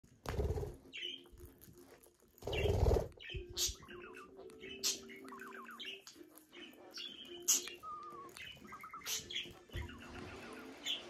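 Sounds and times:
budgerigar chirping: 2.5 - 11.0.

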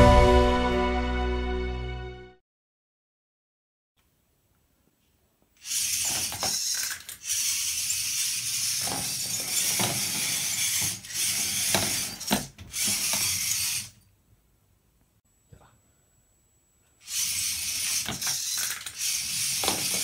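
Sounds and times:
robot motors whirring and rattling: 5.6 - 14.0, 17.0 - 20.0.

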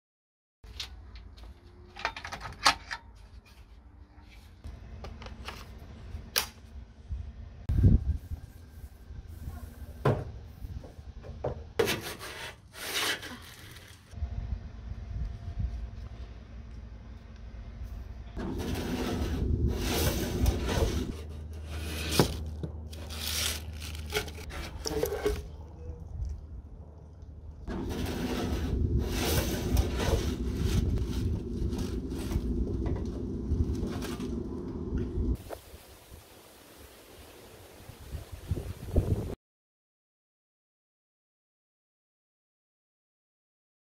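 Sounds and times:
plastic scoop scraping metal gutter: 11.8 - 14.2, 18.4 - 25.6, 27.7 - 33.1
wet leaves rustling: 22.0 - 24.5, 35.4 - 39.1.

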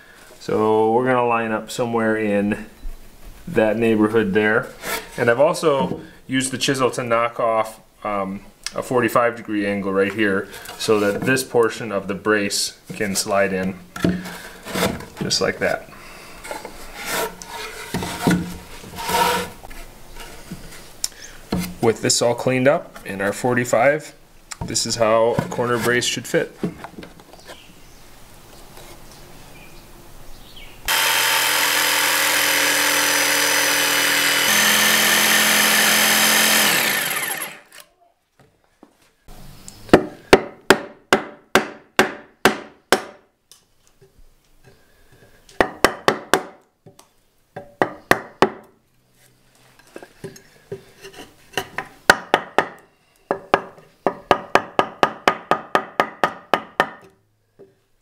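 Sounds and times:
power tool running: 30.9 - 37.9.

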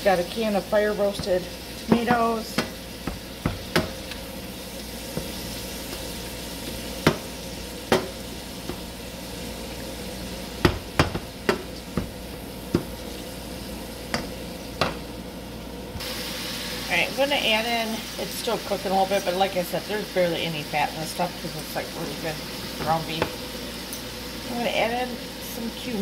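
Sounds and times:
meat sizzling in frying pan: 0.0 - 26.0
meat chopper knocking on pan: 1.1 - 4.2, 7.0 - 9.0, 10.6 - 13.0, 14.1 - 15.0.

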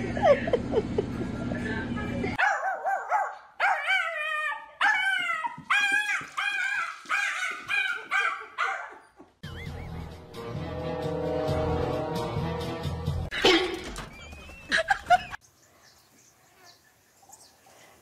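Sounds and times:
small dog yelping and howling: 2.4 - 9.2.

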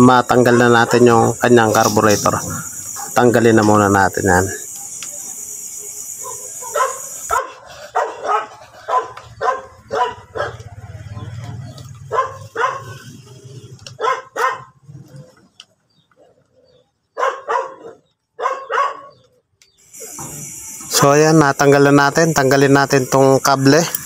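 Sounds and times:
dog barking: 0.4 - 1.5, 2.9 - 3.2, 6.1 - 11.2, 12.0 - 13.2, 13.9 - 15.3, 16.1 - 19.4.

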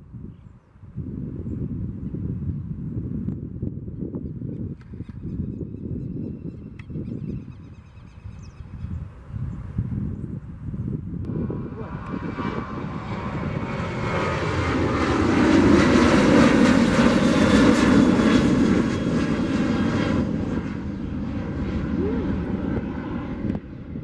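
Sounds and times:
jet airliner taking off: 10.2 - 24.0.

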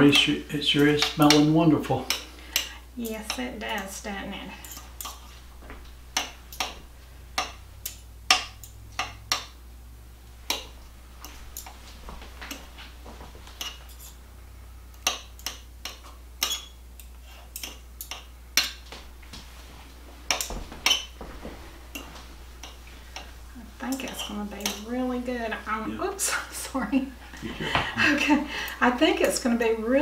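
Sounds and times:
metal utensils scraping ceramic pot: 0.0 - 5.3, 13.6 - 14.2, 15.1 - 18.7, 21.9 - 25.5
low steady hum: 0.0 - 30.0.

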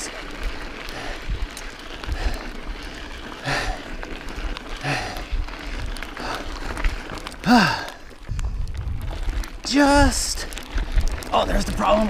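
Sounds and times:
bike tyres crunching on gravel: 0.0 - 12.0
woman breathing hard: 3.4 - 4.1, 4.8 - 5.4, 7.4 - 8.0.

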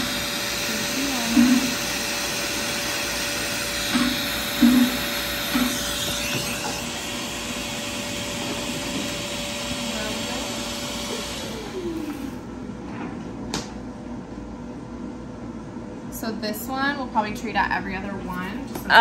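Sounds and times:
air cooler blower hissing: 0.0 - 14.1.

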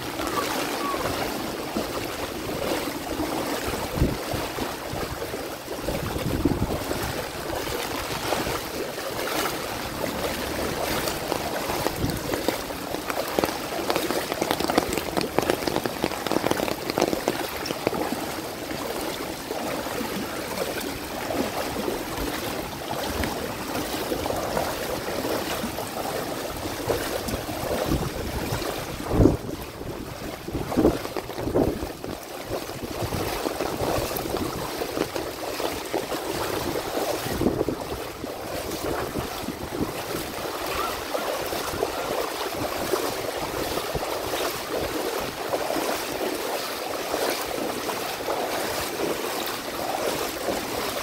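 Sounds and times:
heavy rain: 0.0 - 31.8
floodwater running and splashing: 0.0 - 51.0.

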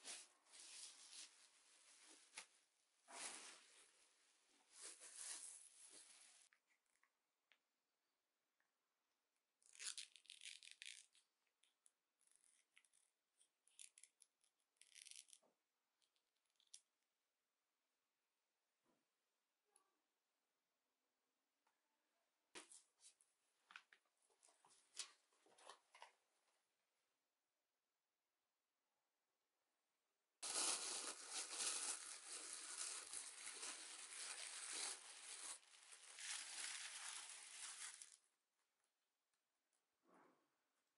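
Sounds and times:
label crinkling: 30.4 - 38.2.

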